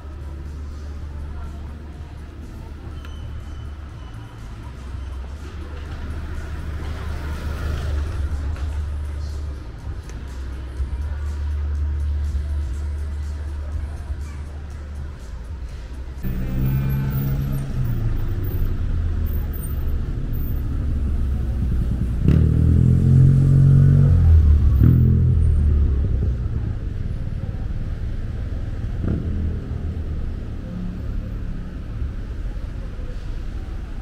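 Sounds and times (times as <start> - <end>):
vehicle engines running: 0.0 - 34.0
vehicle passing: 16.2 - 33.9.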